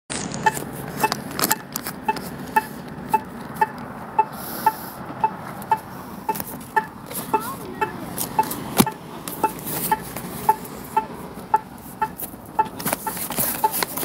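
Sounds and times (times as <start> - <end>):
pedestrian signal ticking: 0.4 - 14.0.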